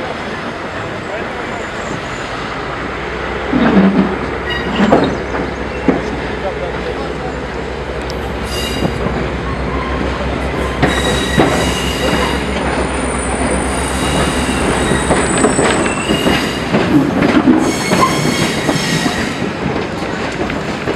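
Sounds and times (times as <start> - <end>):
wheels clacking over rail joints: 3.4 - 20.9
steel wheels squealing: 3.5 - 5.9, 8.4 - 16.8, 17.6 - 19.5.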